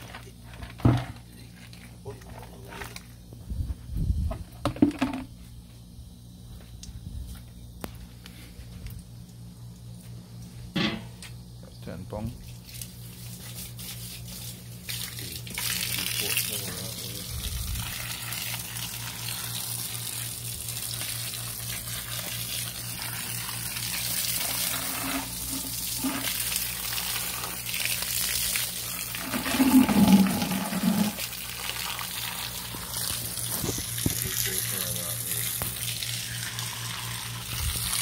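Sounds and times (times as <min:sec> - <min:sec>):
water running from a hose: 0:12.2 - 0:38.0
water draining through a grate: 0:14.9 - 0:38.0.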